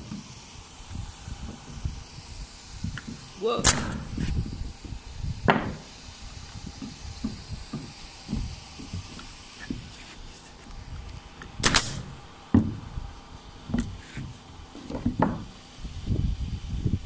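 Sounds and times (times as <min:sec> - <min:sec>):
nail gun shots into wood: 0:03.6 - 0:04.1, 0:11.6 - 0:12.1.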